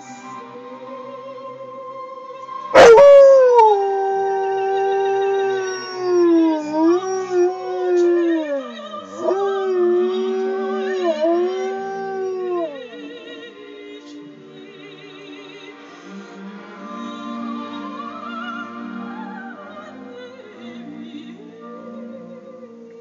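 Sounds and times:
faint operatic singing: 0.0s - 23.0s
dog howling: 2.7s - 13.1s.

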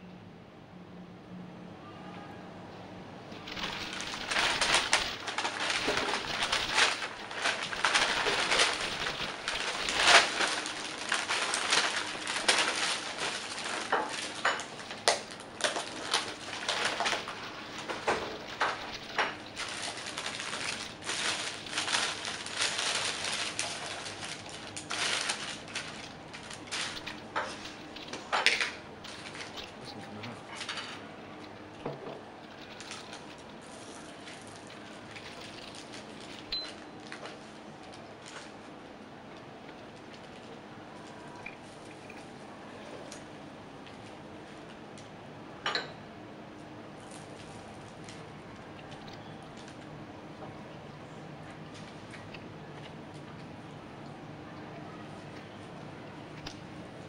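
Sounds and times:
paper bags crinkling: 3.3s - 42.1s.

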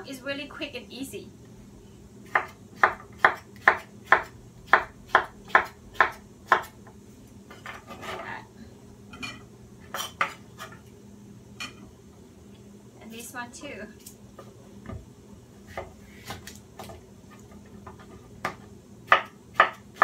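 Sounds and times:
knife chopping on wooden board: 2.3s - 6.8s, 17.8s - 20.0s.

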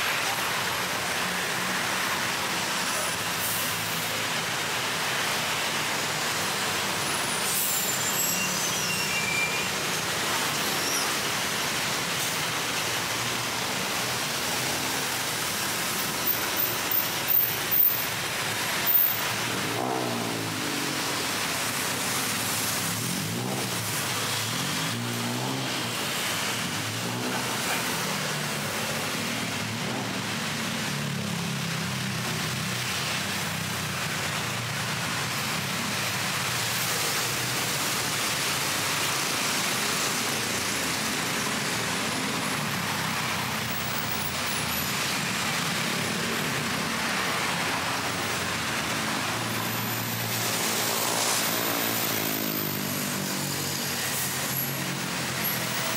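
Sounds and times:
traffic noise: 0.0s - 55.9s
vehicle engines passing: 0.0s - 55.9s.

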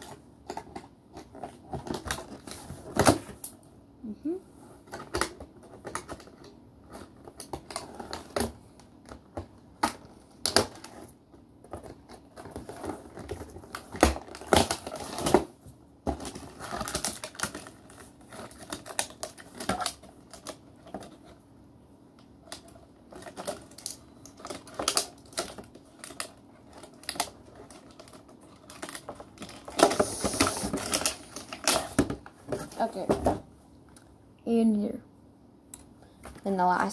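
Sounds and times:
packaging rustling and crinkling: 4.8s - 21.4s, 22.4s - 33.4s.

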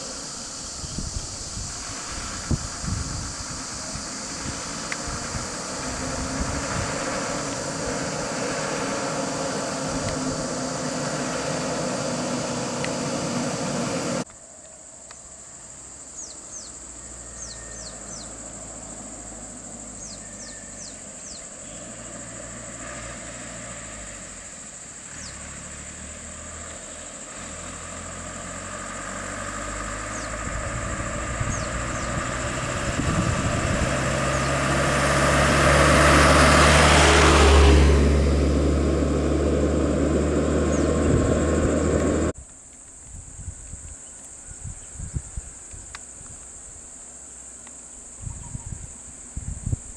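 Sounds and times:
truck driving past: 0.0s - 14.3s, 17.0s - 42.4s
vehicle passing close: 0.0s - 14.3s, 17.4s - 42.4s
steady engine hum: 0.0s - 42.4s
bird chirps: 16.1s - 18.4s, 20.0s - 21.9s, 31.5s - 32.4s.

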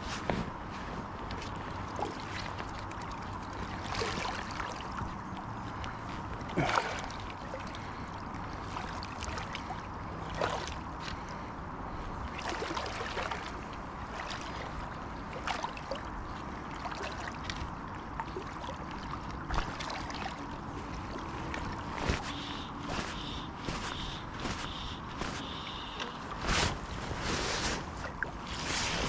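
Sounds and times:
river water lapping and gurgling: 0.0s - 29.0s
sharp splashes: 1.9s - 5.0s, 6.4s - 11.3s, 12.3s - 29.0s.

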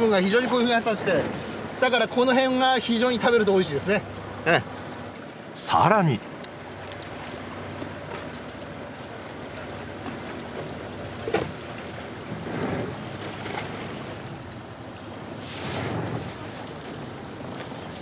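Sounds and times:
water washing against boat hull: 0.0s - 18.0s
wind on microphone: 15.4s - 18.0s.

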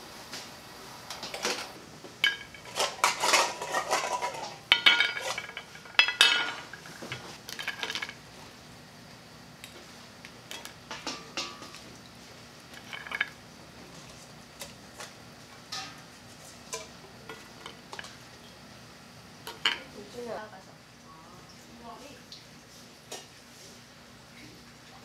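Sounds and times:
shellfish and bowl clinking on plate: 2.2s - 8.2s, 12.8s - 13.4s.

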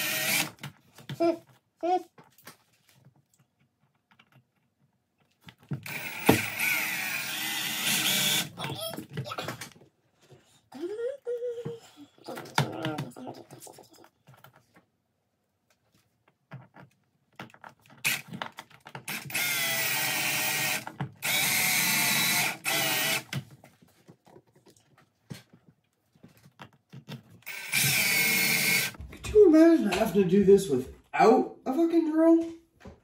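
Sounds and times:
electric drill spinning: 0.0s - 0.6s, 5.8s - 8.6s, 18.0s - 18.4s, 19.1s - 23.4s, 27.4s - 29.0s.

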